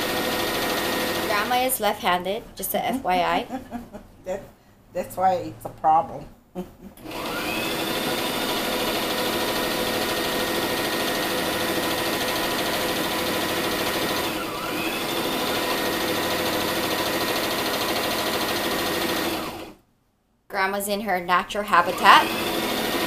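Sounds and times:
electric sewing machine running: 0.0 - 1.5, 7.0 - 19.8, 21.8 - 23.0.

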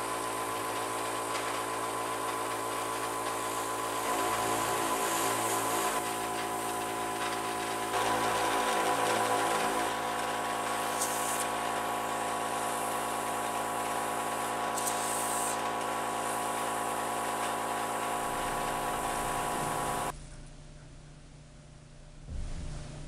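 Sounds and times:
airbrush compressor humming: 0.0 - 20.1
airbrush spray bursts: 0.0 - 20.1.

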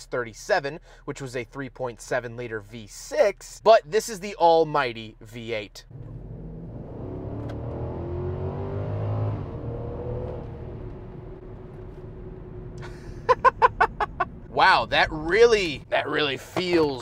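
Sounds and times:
car engine accelerating: 5.9 - 16.0.

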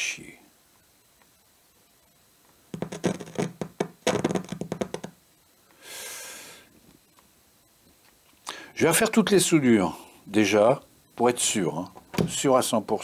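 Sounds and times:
amplifier crackling with hum: 0.0 - 5.8, 6.6 - 13.0
soft hissing rush: 5.2 - 11.8.

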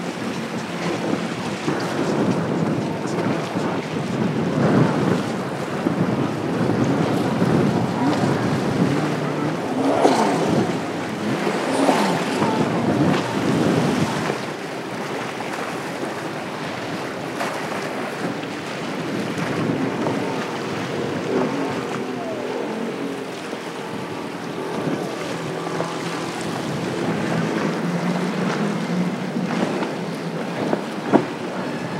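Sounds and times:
boat engine drone: 0.0 - 31.9
hull slapping choppy water: 0.0 - 31.9
wind buffeting the microphone: 0.0 - 31.9
rush of spray: 4.8 - 31.9.

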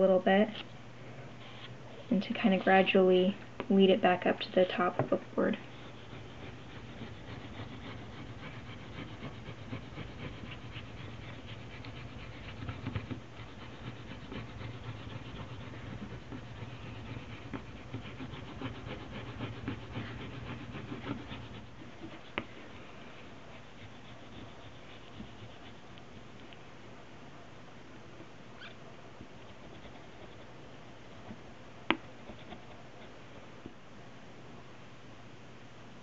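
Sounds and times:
low steady hum: 0.0 - 36.0
bone folder scratching leather: 5.6 - 22.9, 23.5 - 25.8.

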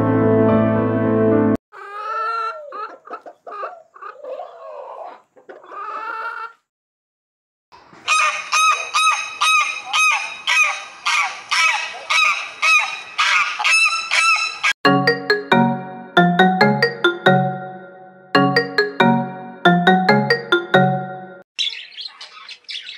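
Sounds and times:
hens clucking: 1.8 - 6.6.

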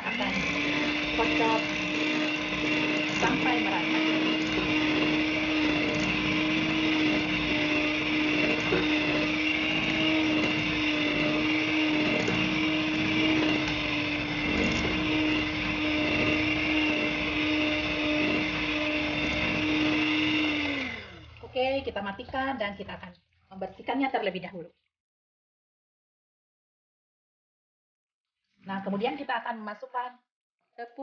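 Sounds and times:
electric hand mixer running: 0.0 - 23.0.

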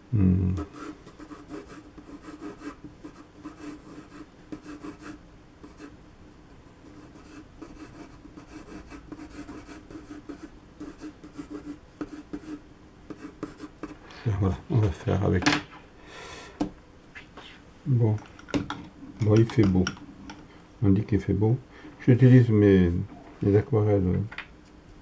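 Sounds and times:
pencil scratching on paper: 0.6 - 5.9, 6.8 - 14.0.

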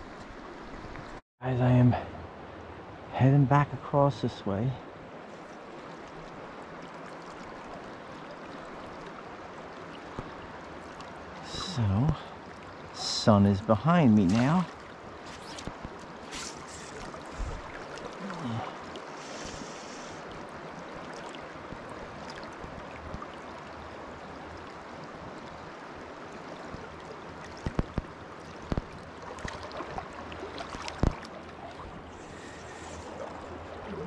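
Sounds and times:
river current rushing: 5.0 - 24.6, 29.2 - 34.0.

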